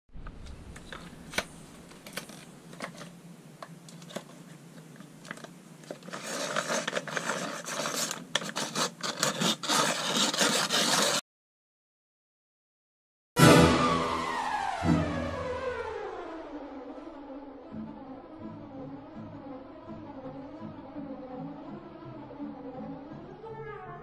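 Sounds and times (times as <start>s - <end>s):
pencil sharpener scraping and clicking: 5.3s - 11.2s.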